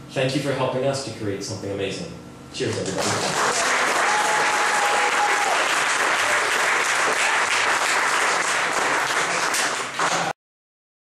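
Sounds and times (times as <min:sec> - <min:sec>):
audience applauding: 0:02.9 - 0:10.4.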